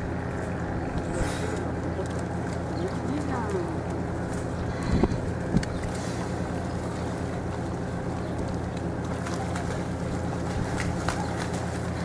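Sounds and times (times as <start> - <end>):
low engine drone: 0.0 - 12.0
wind noise on microphone: 4.6 - 5.9.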